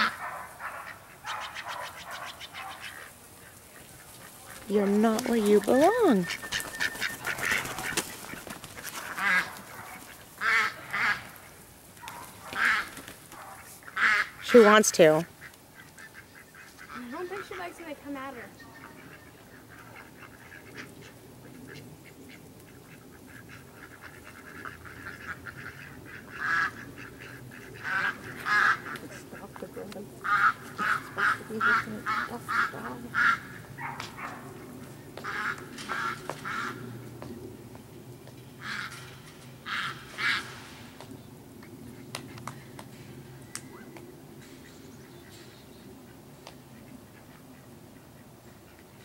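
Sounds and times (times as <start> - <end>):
ducks quacking: 0.0 - 37.0, 38.6 - 40.7.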